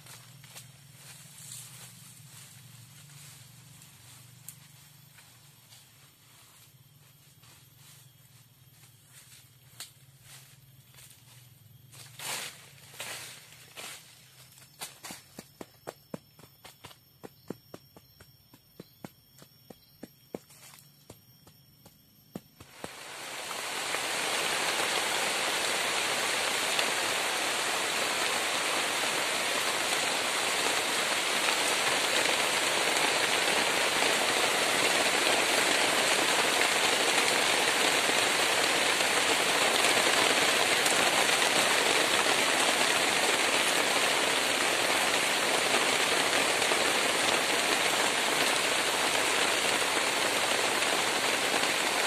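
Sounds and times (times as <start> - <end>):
heavy rain on leaves: 22.6 - 52.0.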